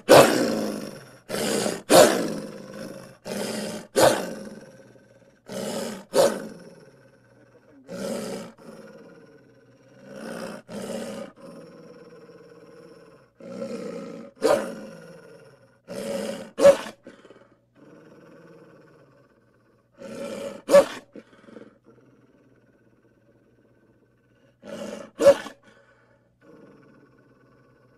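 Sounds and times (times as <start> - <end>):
cartoon wolf growling and snarling: 0.0 - 27.9.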